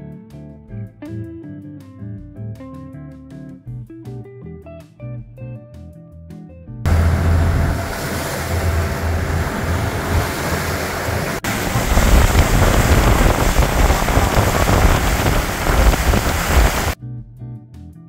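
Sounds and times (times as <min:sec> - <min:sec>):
deep rumble: 0:06.9 - 0:17.0
water splashing along boat hull: 0:06.9 - 0:17.0.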